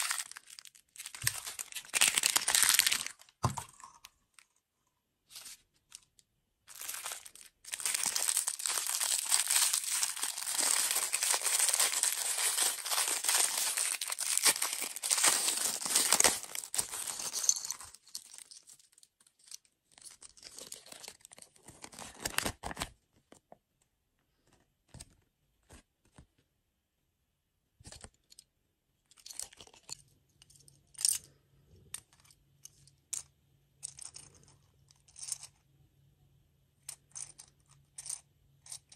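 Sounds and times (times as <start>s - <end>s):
plastic wrapper crinkling: 0.0s - 3.7s, 6.7s - 19.1s, 20.0s - 22.9s.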